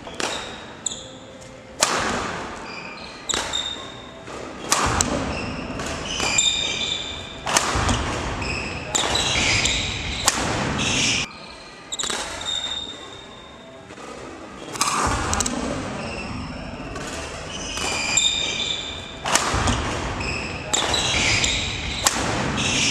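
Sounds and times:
sports shoes squeaking on court floor: 0:00.0 - 0:01.6, 0:02.5 - 0:22.9
sharp smacks: 0:01.8 - 0:02.6, 0:04.7 - 0:06.4, 0:07.4 - 0:08.4, 0:09.0 - 0:10.8, 0:19.2 - 0:22.9.

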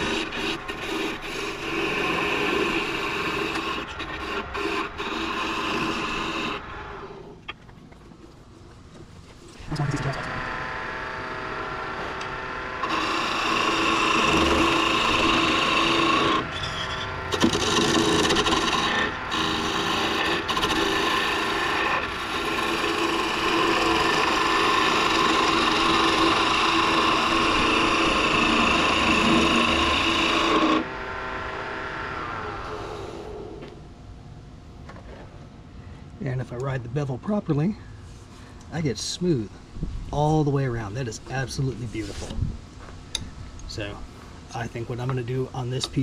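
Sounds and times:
chisel cutting wood hiss: 0:00.0 - 0:06.6, 0:12.8 - 0:30.9
wood lathe hum: 0:00.0 - 0:07.3, 0:09.7 - 0:33.8.

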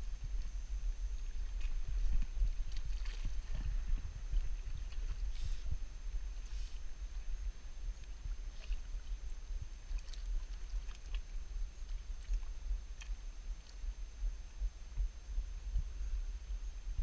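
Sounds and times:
wind buffeting microphone: 0:00.0 - 0:08.4.

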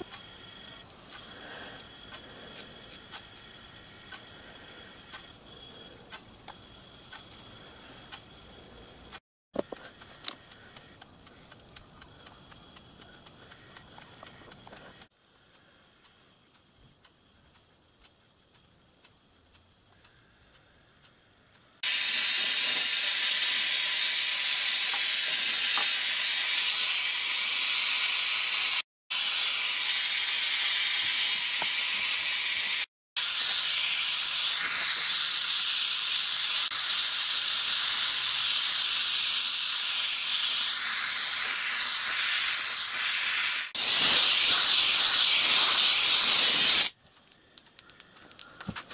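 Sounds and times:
gas torch flame hissing: 0:00.0 - 0:16.4, 0:21.8 - 0:47.0.

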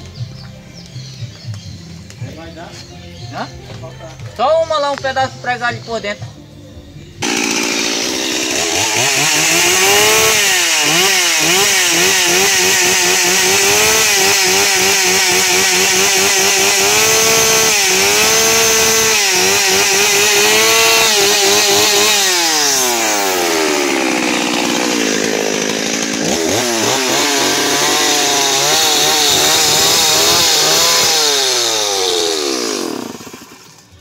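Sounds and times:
chainsaw cutting wood: 0:07.2 - 0:34.0.

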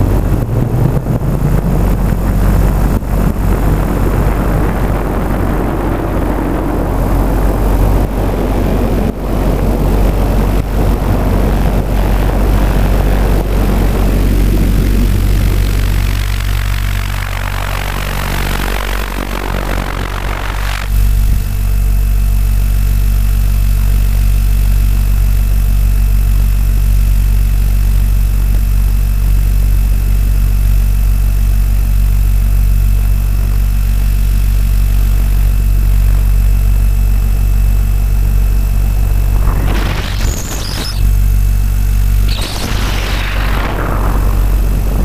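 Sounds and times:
model helicopter rotor drone: 0:00.0 - 0:45.0
air rushing past: 0:37.1 - 0:45.0
brief rush of noise: 0:38.8 - 0:41.1, 0:42.2 - 0:45.0.

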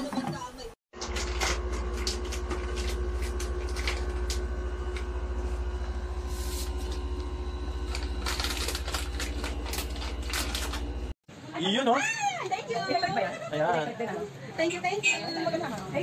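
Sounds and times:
air fryer motor and fan hum: 0:01.0 - 0:11.2.

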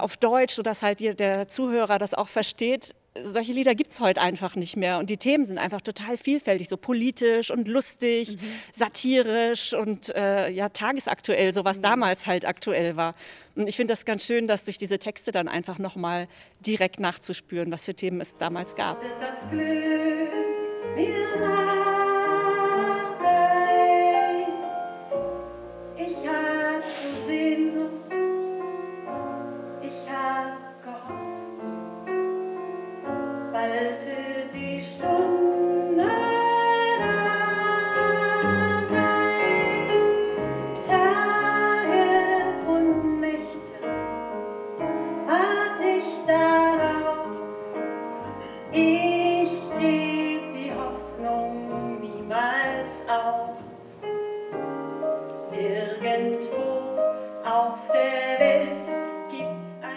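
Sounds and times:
woman singing with vibrato: 0:18.2 - 0:25.1, 0:25.9 - 0:28.5, 0:29.8 - 0:31.5, 0:33.5 - 0:44.0, 0:45.3 - 0:47.5, 0:48.7 - 0:53.6, 0:55.5 - 0:59.9
piano: 0:18.2 - 0:59.9.

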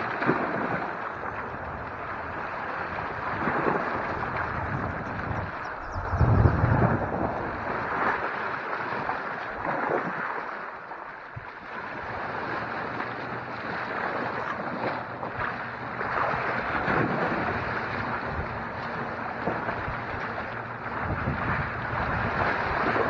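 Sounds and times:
waves lapping against rock: 0:00.0 - 0:23.0
wind buffeting microphone: 0:00.0 - 0:23.0.

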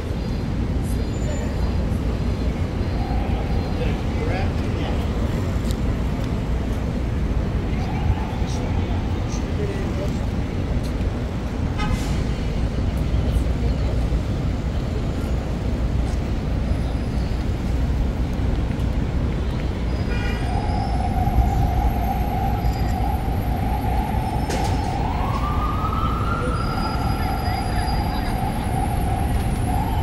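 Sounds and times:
city traffic noise: 0:00.0 - 0:30.0
emergency vehicle siren: 0:02.5 - 0:05.6, 0:07.0 - 0:10.4, 0:20.1 - 0:30.0.

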